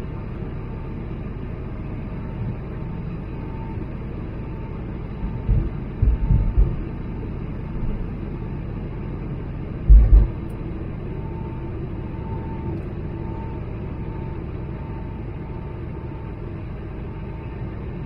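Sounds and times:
aircraft cabin low rumble: 0.0s - 18.0s
faint steady hum: 0.0s - 18.0s
heavy low bumps: 5.2s - 7.1s, 9.8s - 10.7s.

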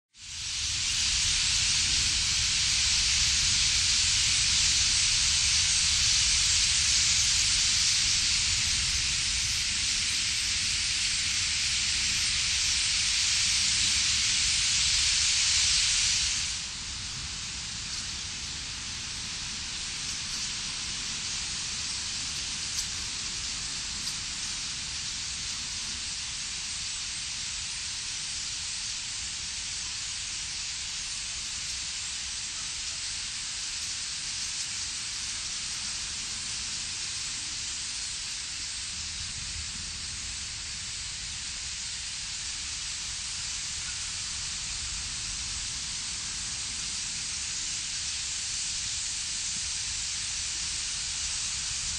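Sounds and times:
flock of starlings calling: 7.0s - 8.8s.

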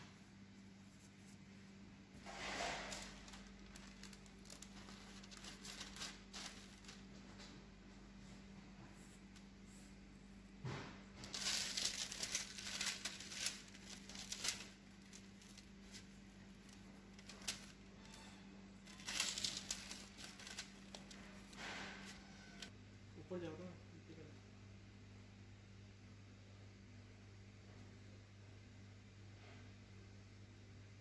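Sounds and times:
steady low hum: 0.0s - 31.0s
parchment paper rustling: 0.6s - 10.0s, 10.6s - 22.7s
crumbs pattering on paper: 2.6s - 7.6s, 11.2s - 17.8s, 18.9s - 22.7s.

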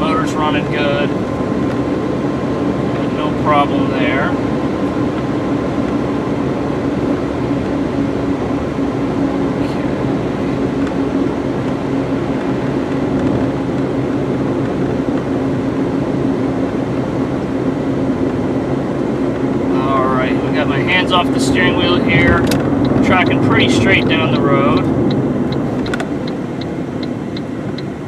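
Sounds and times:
car engine hum: 0.0s - 28.0s
tyre and road noise: 0.0s - 28.0s.

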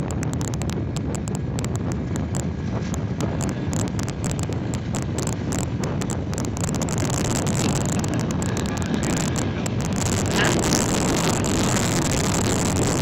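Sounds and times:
motorcycle engine running: 0.0s - 13.0s
wind rushing over microphone: 0.0s - 13.0s.

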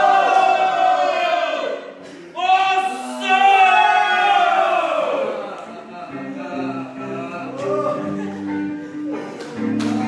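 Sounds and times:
singing voices: 0.0s - 10.0s
music: 5.2s - 10.0s.

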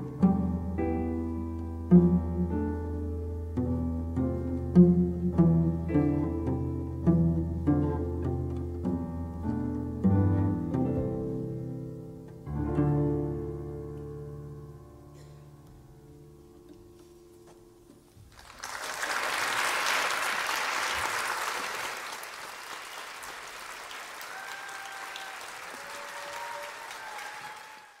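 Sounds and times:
cello and piano chord ringing: 0.0s - 16.7s
audience applause: 18.3s - 28.0s.

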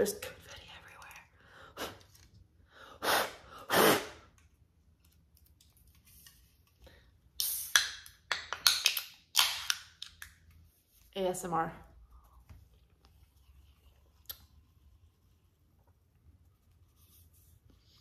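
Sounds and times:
can opening pop and hiss: 7.4s - 8.1s.

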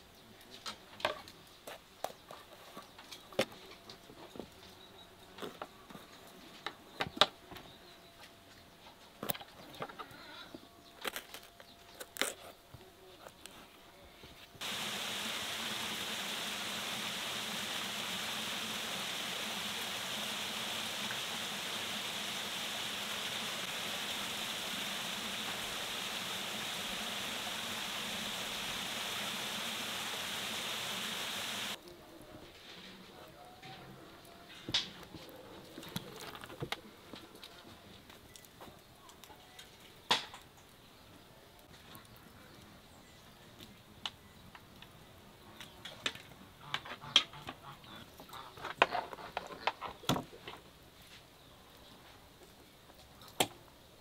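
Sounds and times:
water flowing over rocks: 14.6s - 31.8s.

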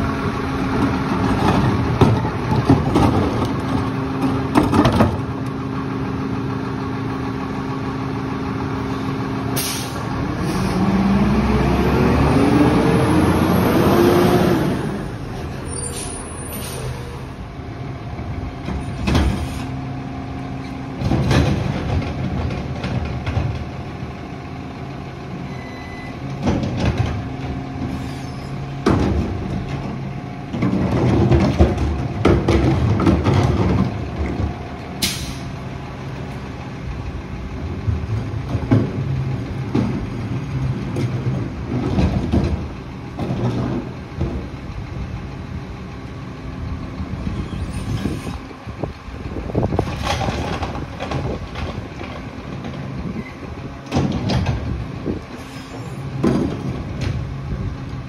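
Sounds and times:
carts clanking and banging: 0.0s - 5.7s, 18.1s - 19.7s, 20.5s - 24.1s, 25.3s - 45.0s, 46.9s - 57.8s
diesel engine running: 0.0s - 58.0s
air brake hiss: 9.6s - 10.8s, 15.8s - 17.2s, 35.0s - 35.6s.

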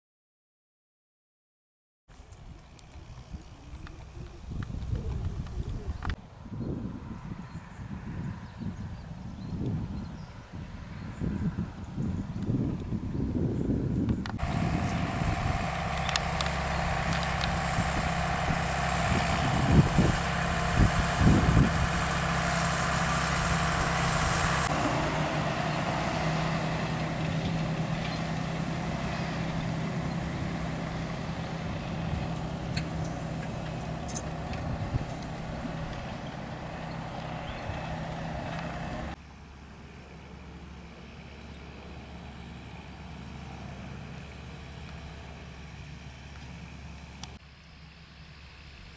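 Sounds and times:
tractor diesel engine running: 2.1s - 6.2s, 11.8s - 48.9s
high whine: 14.3s - 28.2s.

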